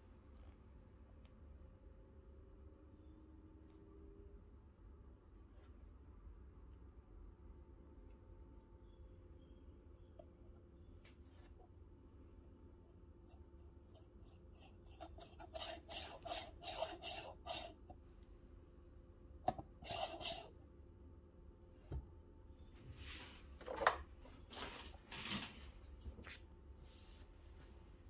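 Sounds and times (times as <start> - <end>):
coffee scraping in metal portafilter: 13.9 - 17.8, 19.8 - 20.5.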